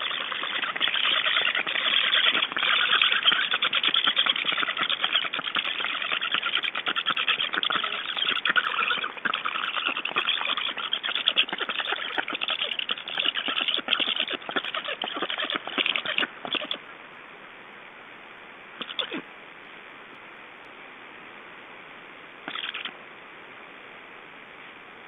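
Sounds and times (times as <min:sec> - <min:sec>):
nestlings begging chatter: 0:00.0 - 0:16.8, 0:18.8 - 0:19.2, 0:22.5 - 0:22.9.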